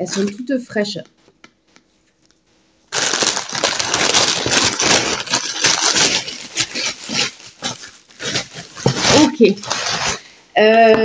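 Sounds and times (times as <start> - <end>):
bread bag rustling and crinkling: 2.9 - 10.3.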